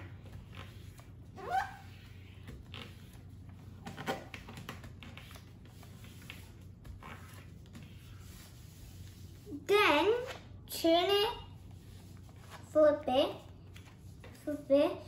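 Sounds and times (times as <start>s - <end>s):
paper folding and rustling: 0.0s - 9.4s.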